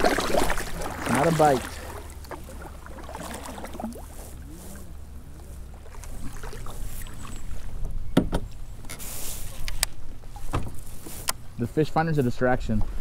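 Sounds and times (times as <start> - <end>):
sharp knocks on kayak: 8.2 - 8.5.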